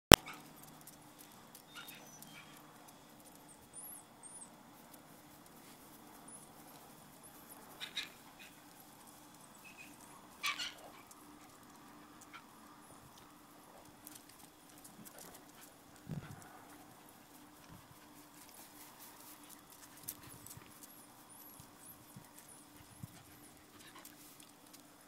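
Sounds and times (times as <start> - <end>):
low steady hum: 0.1 - 25.0
puppies squeaking: 1.6 - 2.7, 7.8 - 8.6, 9.5 - 11.2.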